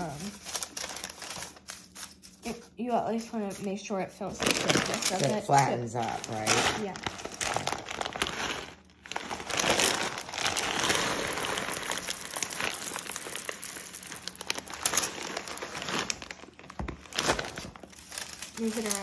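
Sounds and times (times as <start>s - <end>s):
plastic bag crinkling: 0.0s - 19.0s
beans pattering onto paper: 3.5s - 19.0s.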